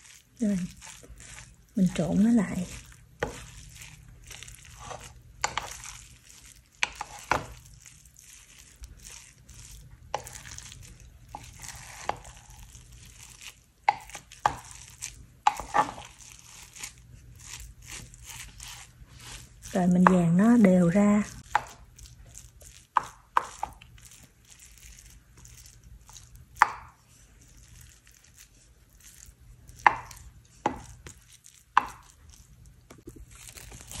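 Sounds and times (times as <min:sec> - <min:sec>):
rice squishing: 0:00.0 - 0:34.0.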